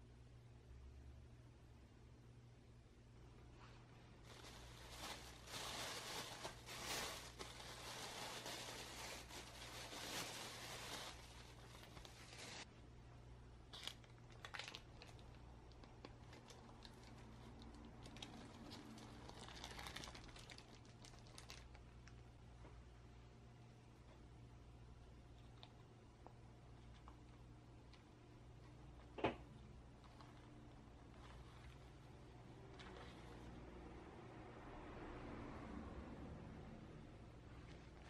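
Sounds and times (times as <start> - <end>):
baking paper crackling: 4.2 - 12.7, 13.7 - 22.2
plastic bag crinkling: 4.2 - 12.7, 13.7 - 22.1, 30.0 - 32.0.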